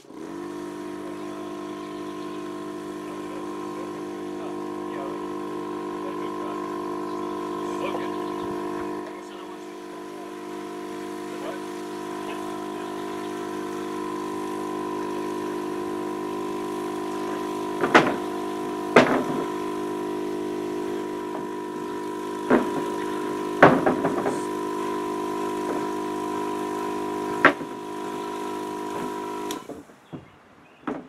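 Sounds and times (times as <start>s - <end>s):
small motor humming: 0.0s - 30.3s
sharp knocks: 17.8s - 18.3s, 18.9s - 19.5s, 23.6s - 24.5s, 29.6s - 31.0s.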